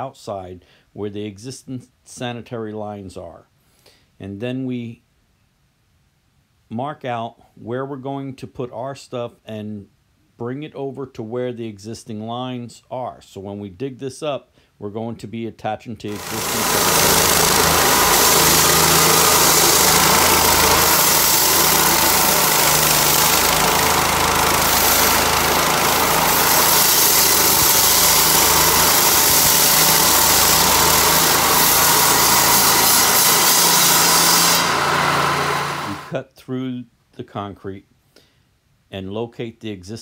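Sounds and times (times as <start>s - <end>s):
concrete saw cutting concrete: 16.1s - 36.2s.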